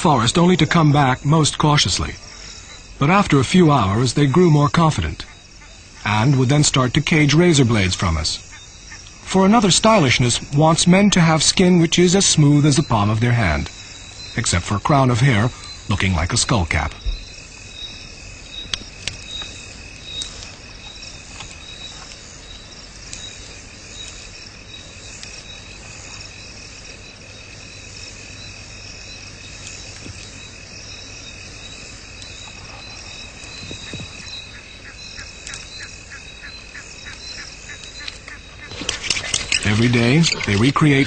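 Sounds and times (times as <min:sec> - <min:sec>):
clicking insect calls: 0:00.0 - 0:41.0
insects calling: 0:00.0 - 0:41.0.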